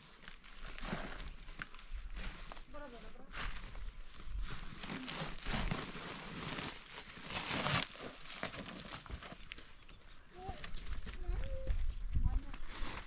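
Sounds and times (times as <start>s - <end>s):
fabric sack rustling: 0.0s - 9.6s
hands scraping dry soil: 0.0s - 11.7s, 12.3s - 13.0s.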